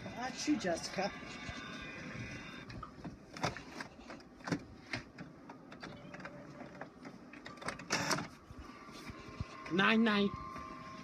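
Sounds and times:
printer motor whine: 0:00.0 - 0:02.8, 0:07.6 - 0:11.0.

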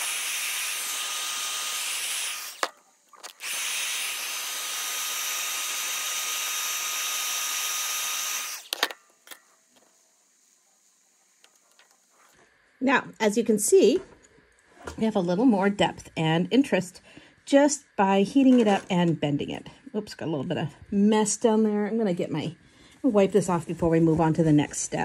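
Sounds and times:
heat gun blowing hot air: 0:00.0 - 0:08.8.

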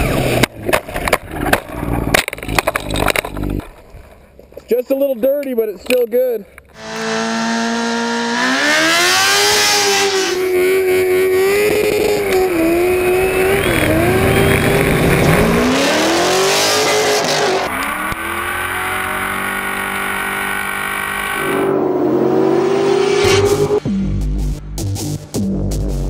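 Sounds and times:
motorcycle engine revving: 0:06.8 - 0:24.6
car engine revving: 0:06.8 - 0:25.2.

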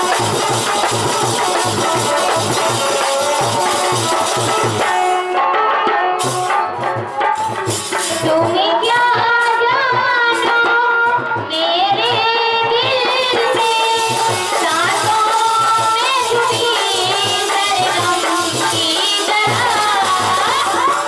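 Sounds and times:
steady drum beat: 0:00.0 - 0:05.4, 0:06.2 - 0:21.0
harmonium: 0:00.0 - 0:21.0
woman singing into a microphone: 0:08.0 - 0:21.0.

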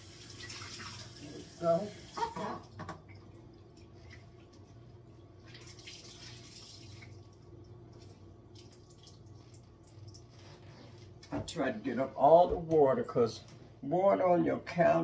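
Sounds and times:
low steady hum: 0:00.0 - 0:15.0
faint water drips: 0:00.4 - 0:10.4
soft wiping at sink: 0:09.3 - 0:12.5.

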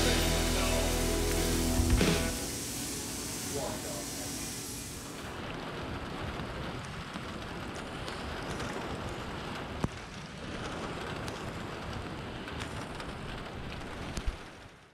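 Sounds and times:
steady rain falling: 0:00.0 - 0:14.9
raindrops tapping: 0:05.3 - 0:14.8.

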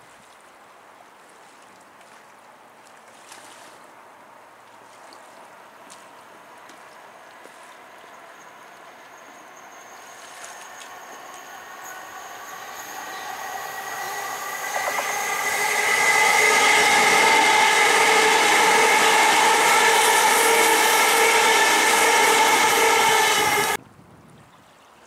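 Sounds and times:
electric train passing: 0:06.3 - 0:23.8.

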